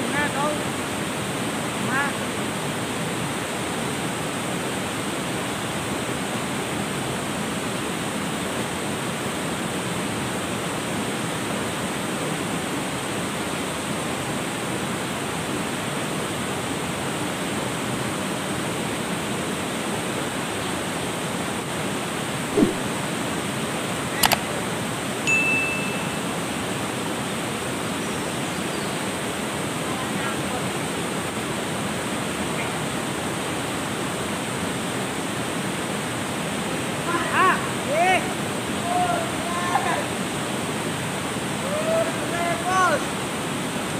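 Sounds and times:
river water rushing: 0.0 - 43.9
short thump: 22.5 - 22.9.

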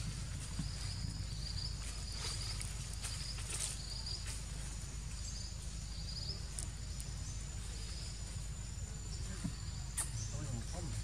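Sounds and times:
insects chirping in buzzy trills: 0.0 - 11.0.

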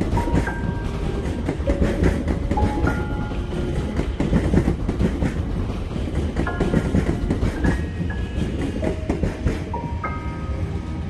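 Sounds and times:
train passing rumble: 0.0 - 11.0
wheels clattering on rails: 0.0 - 11.0
soft piano notes: 6.5 - 11.0.

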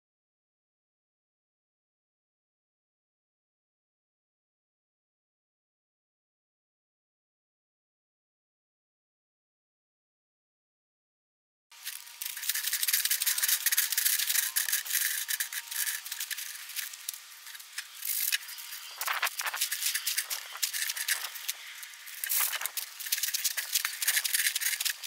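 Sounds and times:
glass pieces rattling and clinking: 11.9 - 25.0.

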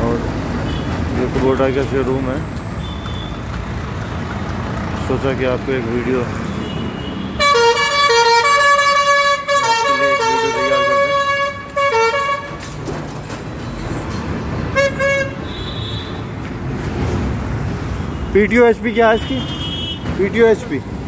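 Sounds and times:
street traffic rumble: 0.0 - 21.0
musical vehicle horn tune: 6.6 - 12.6, 14.7 - 16.2.

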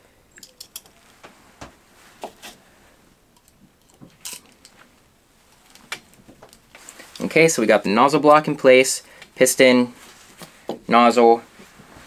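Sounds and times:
tool clicking on metal parts: 0.4 - 1.0.

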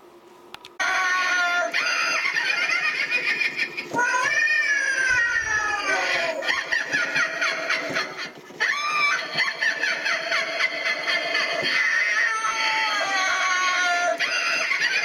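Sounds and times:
eerie wailing voices: 0.8 - 15.0.

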